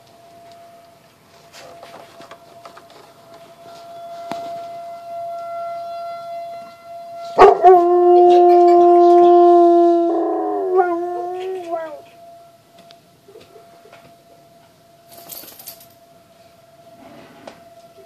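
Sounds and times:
distant warning siren: 0:00.0 - 0:18.0
dog howling: 0:07.4 - 0:12.2.

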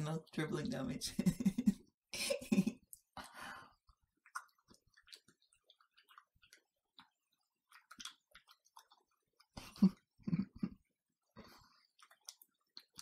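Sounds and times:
wet mouth clicks and smacks: 0:02.8 - 0:10.1, 0:11.8 - 0:13.0.

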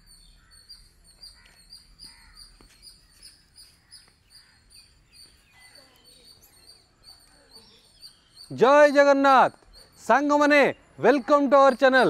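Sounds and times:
lower bird calls: 0:00.0 - 0:08.7
birds chirping: 0:00.0 - 0:12.0.

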